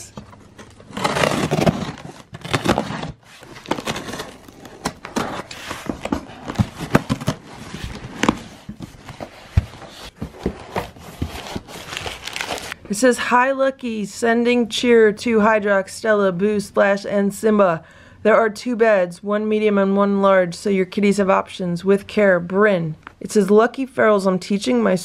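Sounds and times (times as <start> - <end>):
cardboard flaps rustling: 0.0 - 12.8
plastic wrapping rustling: 0.0 - 12.8.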